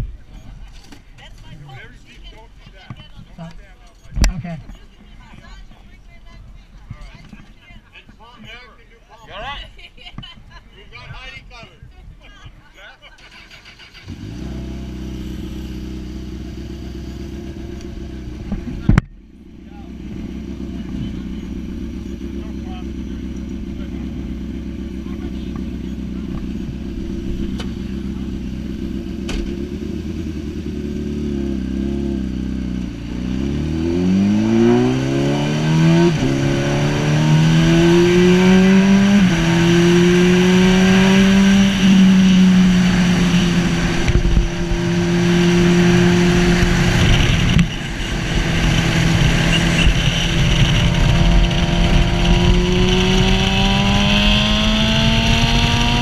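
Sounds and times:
motorcycle engine revving: 0:13.2 - 0:56.0.

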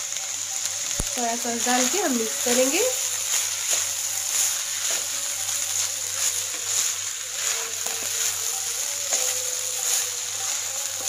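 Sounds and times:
fried rice sizzling: 0:00.0 - 0:11.0
spatula scraping pan: 0:01.6 - 0:11.0.

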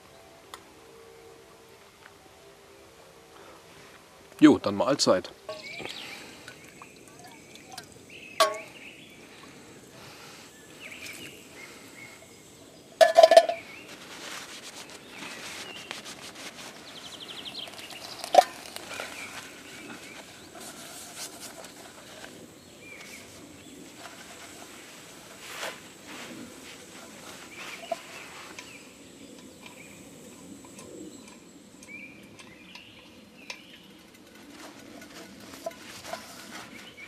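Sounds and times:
birds chirping: 0:02.1 - 0:35.9
cook pot clanking: 0:07.4 - 0:08.8, 0:13.0 - 0:13.6.

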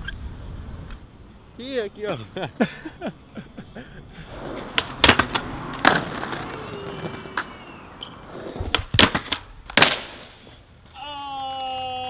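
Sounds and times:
skateboard scraping slide: 0:04.2 - 0:11.0
skateboard clacking on stone: 0:04.5 - 0:07.5, 0:08.4 - 0:12.0.

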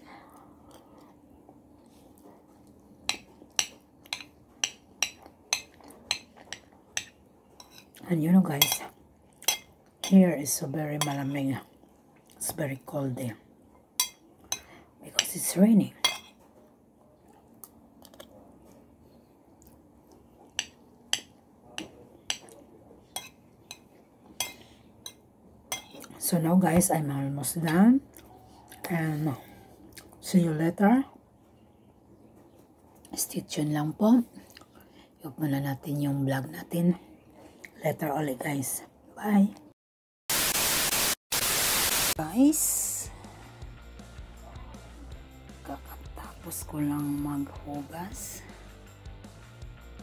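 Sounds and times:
cutlery clinking against a plate: 0:03.1 - 0:08.0, 0:08.6 - 0:10.2, 0:14.0 - 0:15.3, 0:16.0 - 0:16.6, 0:20.6 - 0:26.1
metal fork clinking on a dish: 0:14.0 - 0:14.7, 0:23.2 - 0:26.0.

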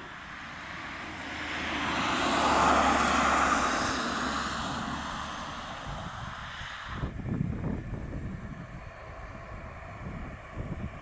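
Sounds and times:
vehicle passing by: 0:00.0 - 0:11.0
steady low hum: 0:05.0 - 0:11.0.

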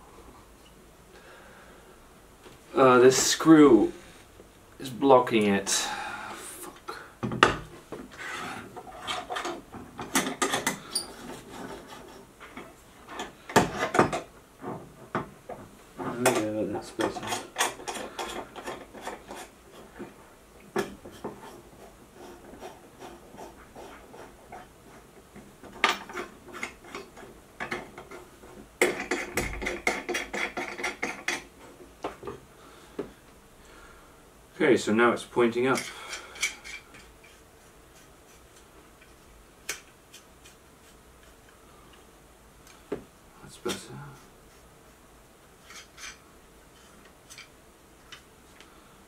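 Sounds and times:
metal clicks and scrapes: 0:45.6 - 0:46.2.

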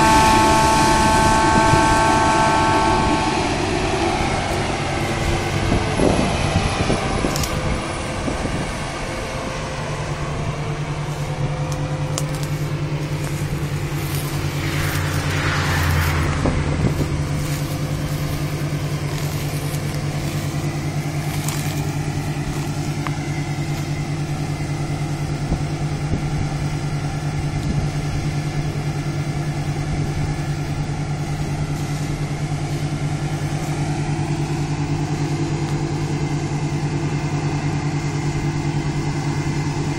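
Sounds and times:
combine harvester running: 0:00.0 - 0:39.9
brief rushing noise: 0:13.5 - 0:19.1.

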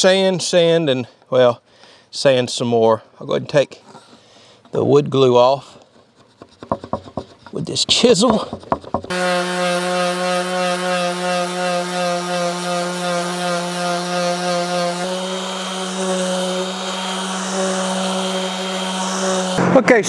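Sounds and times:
orbital sander sanding wood: 0:05.9 - 0:19.7.

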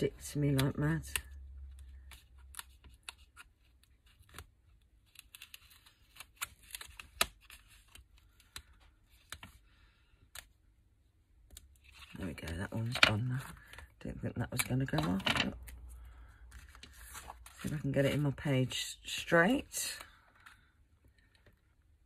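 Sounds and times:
paper handling: 0:14.5 - 0:18.4.

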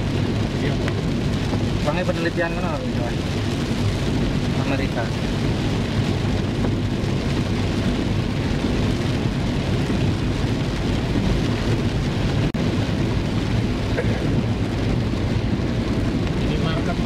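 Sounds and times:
heavy rain drumming on car roof: 0:00.0 - 0:17.0
tyres rumbling on wet road: 0:00.0 - 0:17.0.

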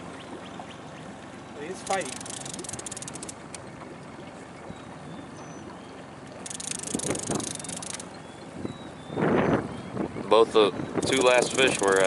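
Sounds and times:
steady water noise: 0:00.0 - 0:12.0
fishing reel clicking rapidly: 0:01.7 - 0:03.6, 0:06.4 - 0:08.1, 0:11.0 - 0:12.0.

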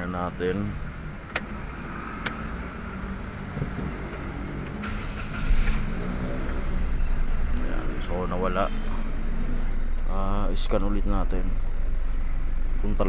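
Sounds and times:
car engine starting and running: 0:00.0 - 0:13.0.

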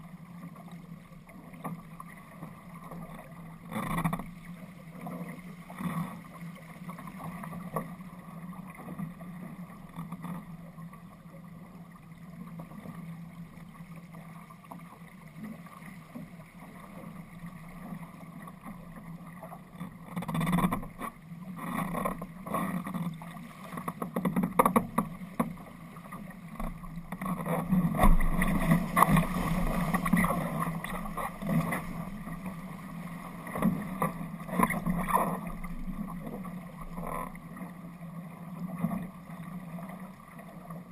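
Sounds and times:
water rushing along boat hull: 0:00.0 - 0:40.9
water slapping: 0:26.5 - 0:37.3.

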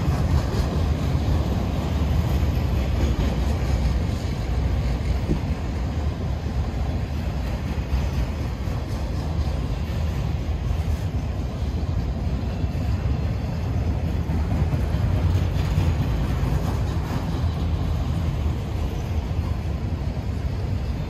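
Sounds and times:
freight train wheels rumbling: 0:00.0 - 0:21.0.

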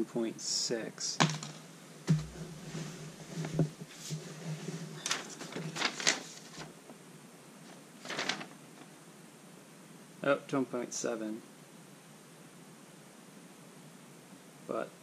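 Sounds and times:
knock: 0:01.2 - 0:02.4.

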